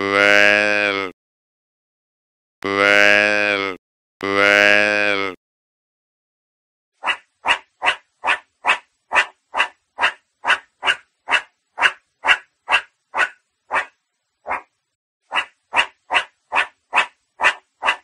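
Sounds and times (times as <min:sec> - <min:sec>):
meerkat calling: 0:07.0 - 0:13.9, 0:15.3 - 0:18.0.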